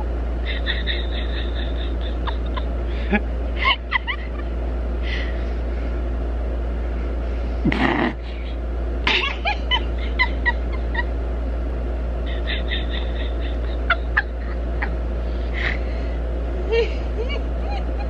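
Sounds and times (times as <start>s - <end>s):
steady low hum: 0.0s - 18.0s
woman giggling: 0.4s - 4.5s, 7.7s - 11.1s, 12.3s - 15.0s, 16.6s - 18.0s.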